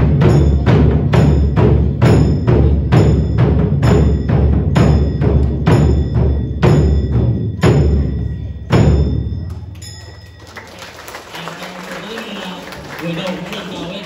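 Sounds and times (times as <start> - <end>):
deep drum beats ringing: 0.0 - 9.7.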